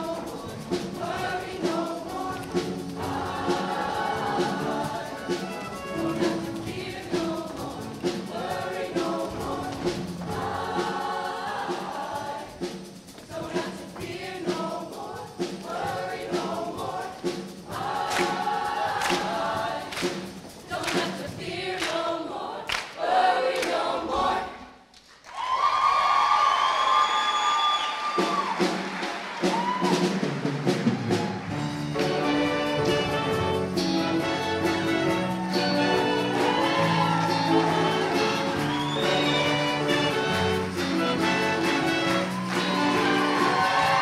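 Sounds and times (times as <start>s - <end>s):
backing music with sharp beat: 0.0s - 22.1s, 28.3s - 44.0s
choir singing up-tempo song: 0.0s - 24.9s, 31.0s - 44.0s
audience cheering: 25.2s - 31.8s, 35.0s - 44.0s.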